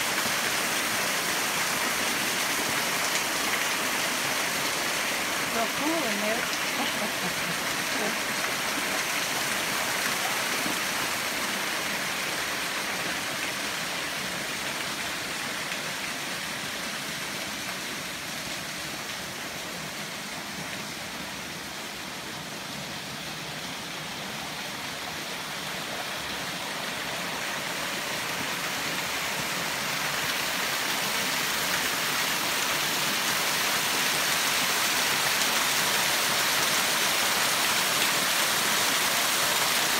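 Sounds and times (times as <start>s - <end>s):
waterfall splashing over rocks: 0.0s - 39.9s.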